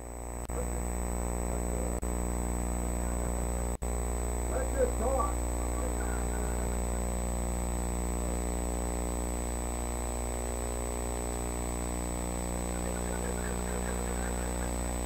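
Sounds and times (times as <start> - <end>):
electrical mains hum and buzz: 0.0 - 15.0
thin high whine: 0.0 - 15.0
faint voices: 4.5 - 7.2, 12.6 - 15.0.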